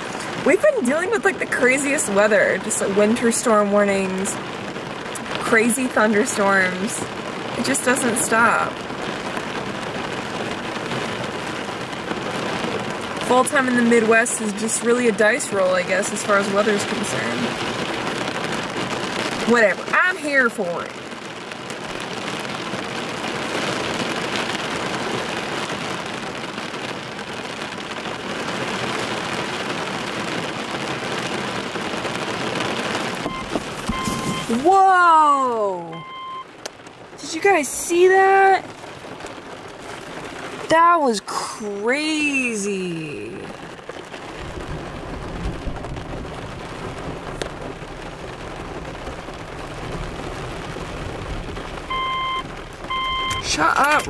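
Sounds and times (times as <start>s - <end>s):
thunder rumbling: 0.0s - 25.4s, 43.4s - 54.0s
rain on a car roof: 0.0s - 54.0s.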